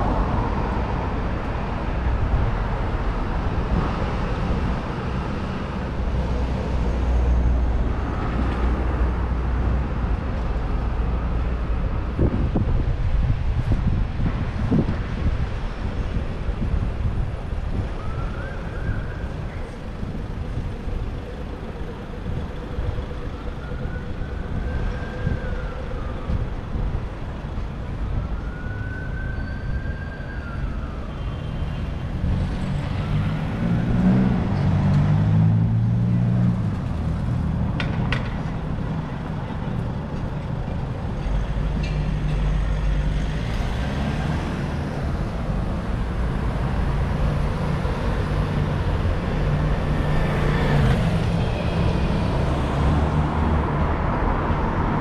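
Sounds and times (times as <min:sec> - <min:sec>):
city street traffic: 0:00.0 - 0:55.0
emergency siren wailing: 0:17.6 - 0:31.9.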